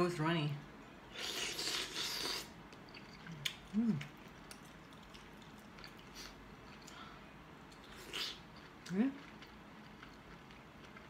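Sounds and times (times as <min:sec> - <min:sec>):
person chewing: 0:01.1 - 0:11.0
person humming: 0:03.7 - 0:04.1.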